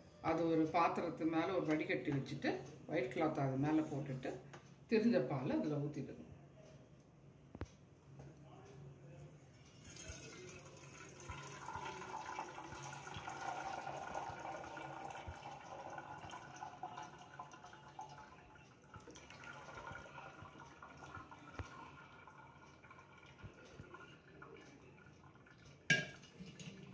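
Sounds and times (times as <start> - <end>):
liquid pouring and splashing: 9.8 - 24.6, 25.4 - 26.9.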